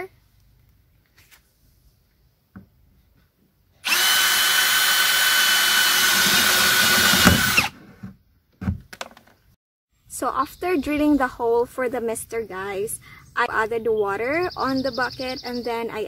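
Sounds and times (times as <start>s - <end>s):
cordless drill boring plastic: 3.8s - 7.8s.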